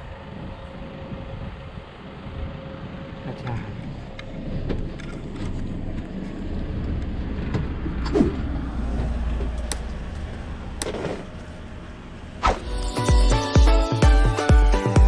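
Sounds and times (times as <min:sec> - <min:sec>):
engine and tyre rumble: 0:00.0 - 0:13.5.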